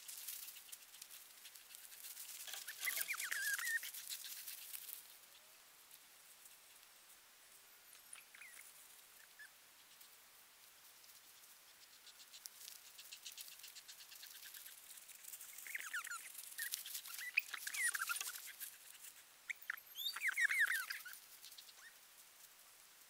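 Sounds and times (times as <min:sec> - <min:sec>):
high chirping gliding calls: 0:02.5 - 0:03.9, 0:08.1 - 0:09.5, 0:15.5 - 0:21.9.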